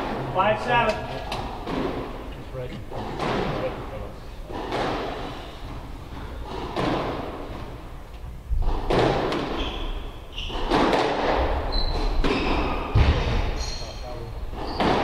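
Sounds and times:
squash ball hits echoing: 0.0 - 2.3, 2.9 - 3.9, 4.5 - 7.9, 8.5 - 13.7, 14.5 - 15.0
shoes squeaking on wooden floor: 8.6 - 15.0.

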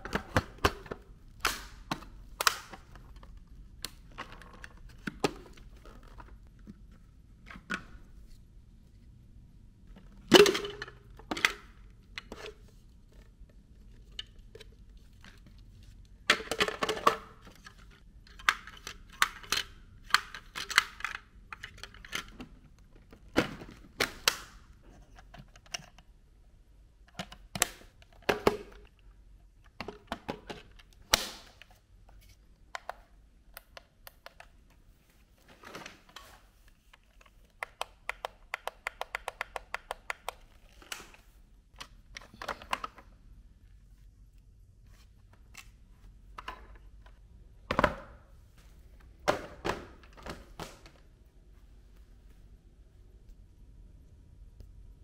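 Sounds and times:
hard plastic parts clicking: 10.0 - 26.1, 36.9 - 41.2, 41.8 - 43.2.

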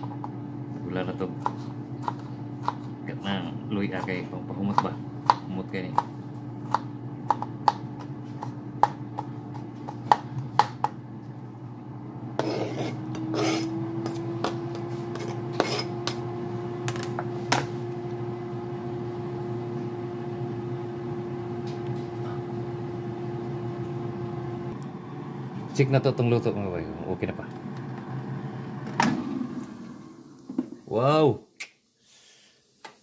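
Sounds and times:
air fryer hum: 0.0 - 31.4
cutting board scraping and clatter: 12.4 - 15.9.

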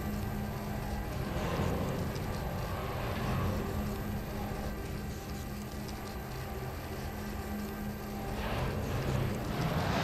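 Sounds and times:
electronic drone music: 0.0 - 10.0.

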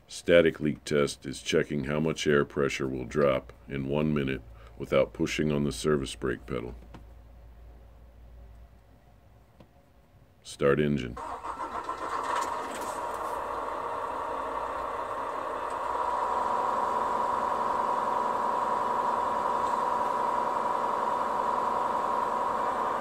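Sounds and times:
diesel engine idling: 11.2 - 23.0.

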